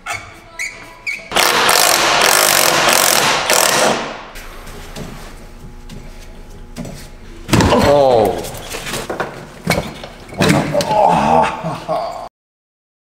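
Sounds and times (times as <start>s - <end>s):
impact wrench hammering: 1.3s - 4.4s.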